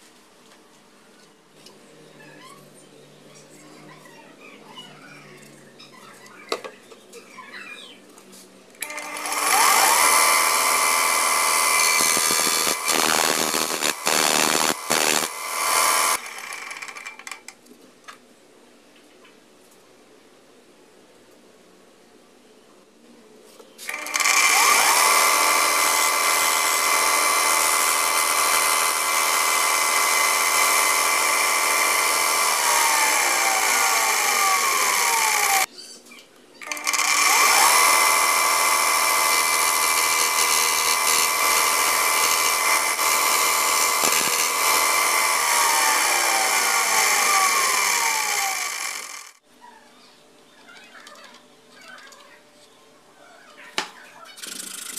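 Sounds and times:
belt sander running: 8.8s - 17.0s, 23.9s - 35.7s, 36.6s - 49.4s.

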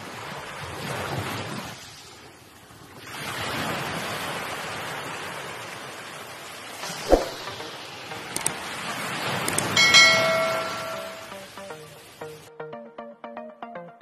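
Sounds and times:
pop sound effect: 6.8s - 7.7s
steady rushing noise: 6.8s - 8.6s
bell-like notification ding: 9.7s - 11.9s.

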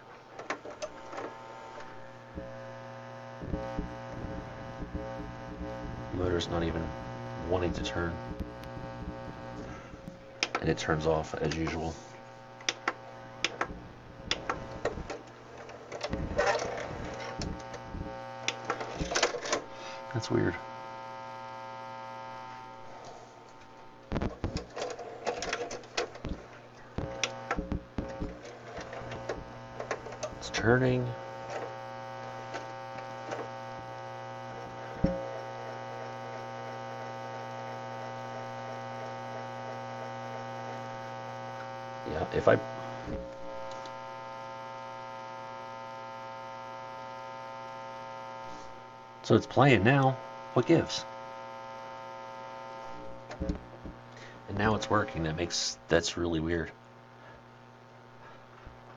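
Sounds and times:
low mains hum: 0.0s - 58.9s
mechanism clicks and rattles: 24.3s - 26.6s.

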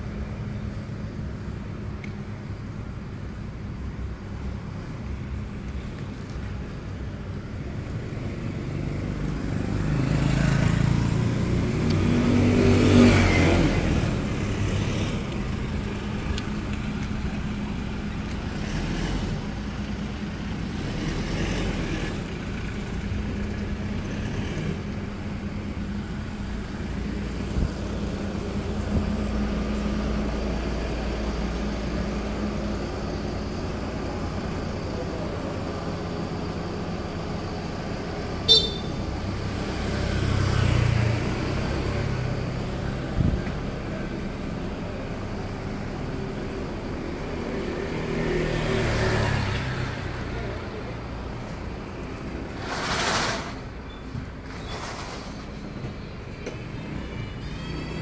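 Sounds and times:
street traffic hum: 0.0s - 58.0s
motor vehicle passing close: 52.2s - 53.8s.

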